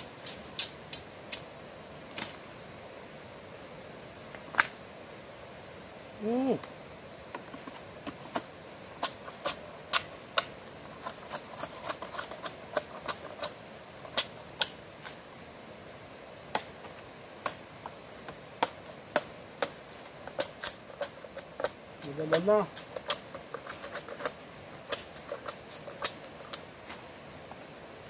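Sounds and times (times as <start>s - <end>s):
machete chopping wooden pole: 16.5s - 17.6s, 18.2s - 26.6s.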